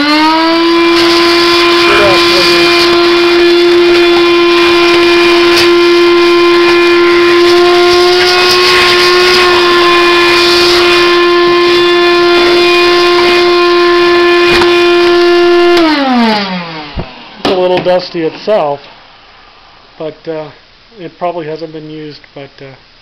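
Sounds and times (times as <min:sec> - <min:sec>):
vacuum cleaner whining: 0:00.0 - 0:19.8.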